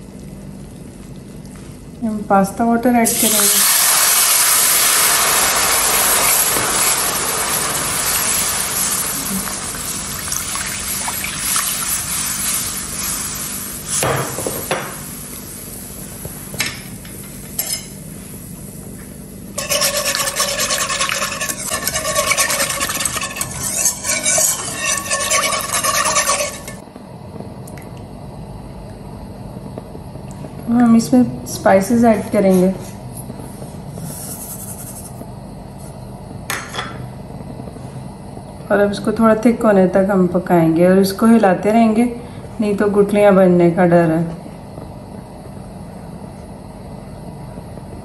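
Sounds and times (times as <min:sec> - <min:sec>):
roux sizzling in pan: 0:03.1 - 0:16.5, 0:19.6 - 0:26.8
spatula stirring against pan: 0:19.6 - 0:26.8.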